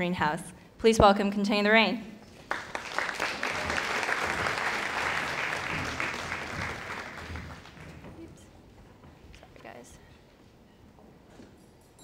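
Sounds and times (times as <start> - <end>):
audience applauding: 2.3 - 8.3.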